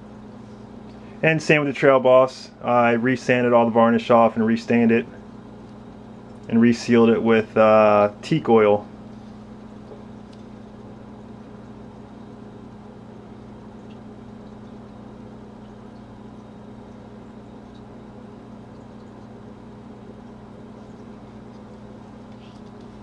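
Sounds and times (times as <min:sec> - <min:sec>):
low room hum: 0:00.0 - 0:23.0
faint ticks of handling: 0:20.8 - 0:23.0.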